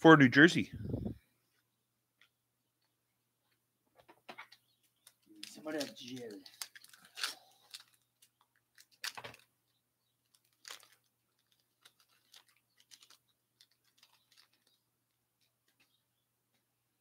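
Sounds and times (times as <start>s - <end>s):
cards being flipped through: 4.3s - 9.5s.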